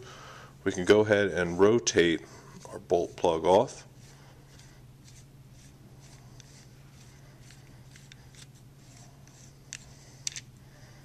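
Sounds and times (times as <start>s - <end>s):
small metal clicks and scraping: 9.7s - 10.5s.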